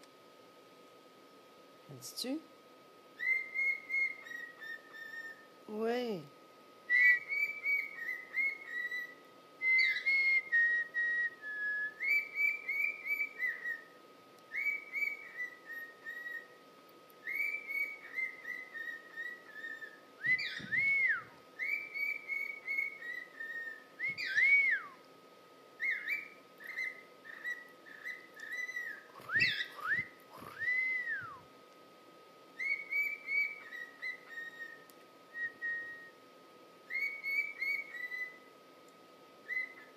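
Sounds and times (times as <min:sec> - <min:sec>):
faint steady hum: 0:00.0 - 0:39.9
cockatiel warbling and whistling: 0:03.2 - 0:05.5, 0:06.9 - 0:13.9, 0:14.5 - 0:16.6, 0:17.2 - 0:25.0, 0:25.8 - 0:31.4, 0:32.6 - 0:36.1, 0:36.9 - 0:38.5, 0:39.4 - 0:39.9.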